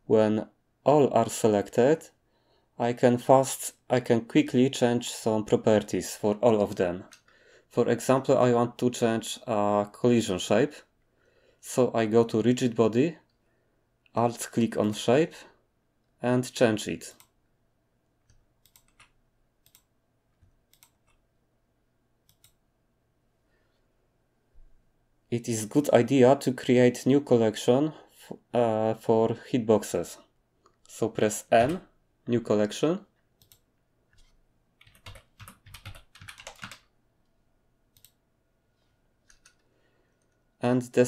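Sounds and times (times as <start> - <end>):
computer mouse clicks: 18.2 - 21.2, 22.2 - 22.6, 33.4 - 36.8, 37.9 - 38.2, 39.2 - 40.4
keyboard typing: 18.2 - 21.2, 22.2 - 22.6, 31.6 - 31.8, 33.4 - 36.9, 39.2 - 40.3.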